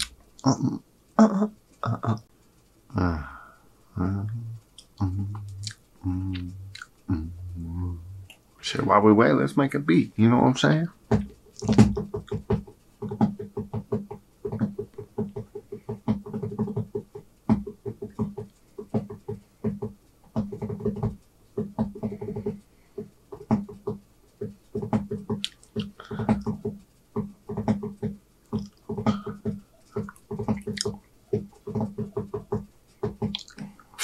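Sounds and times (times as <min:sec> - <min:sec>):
person beatboxing: 0:00.0 - 0:00.7, 0:04.0 - 0:08.4.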